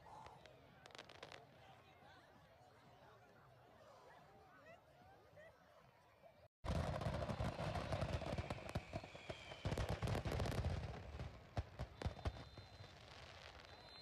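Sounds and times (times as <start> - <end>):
fireworks crackling bangs: 6.7 - 14.0.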